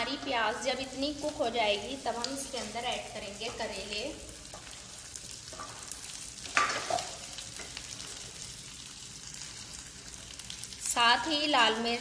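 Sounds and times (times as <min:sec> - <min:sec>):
onions sizzling in hot oil: 0:00.0 - 0:12.0.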